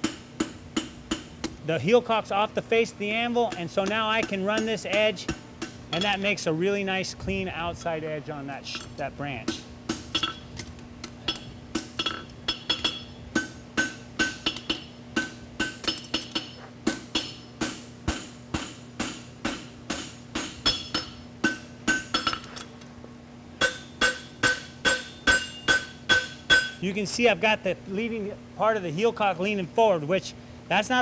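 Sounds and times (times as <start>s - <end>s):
hammer striking horseshoe on anvil: 0.0s - 1.6s, 3.4s - 6.5s, 8.7s - 10.5s, 11.2s - 22.7s, 23.6s - 26.8s
steady low hum: 0.0s - 31.0s.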